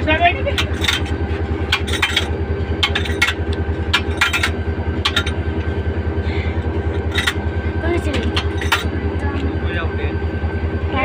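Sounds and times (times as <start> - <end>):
diesel locomotive idling: 0.0 - 11.0
metal clinks and knocks: 0.5 - 5.7, 6.8 - 7.4, 8.0 - 9.0.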